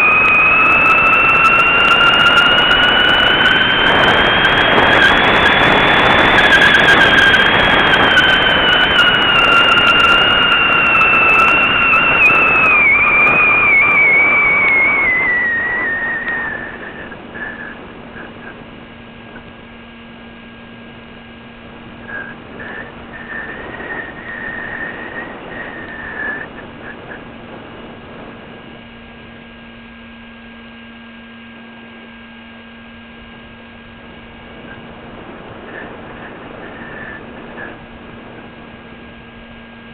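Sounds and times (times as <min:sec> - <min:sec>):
whistle falling in pitch: 0:00.0 - 0:18.6
low hum: 0:00.0 - 0:39.9
wind rushing over camera: 0:00.0 - 0:39.9.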